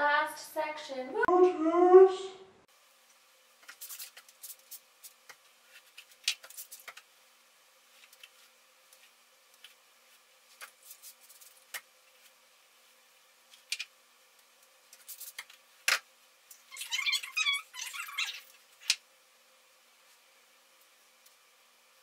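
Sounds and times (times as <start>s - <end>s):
hair rustling and clicking: 3.6s - 7.0s.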